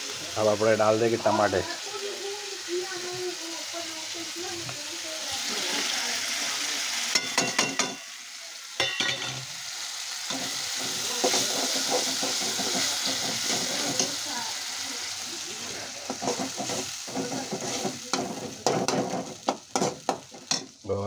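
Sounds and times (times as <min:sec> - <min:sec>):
tomatoes sizzling in hot oil: 0:00.0 - 0:21.0
metal spoon clinking against pan: 0:07.1 - 0:08.1, 0:08.8 - 0:09.5, 0:16.1 - 0:20.8.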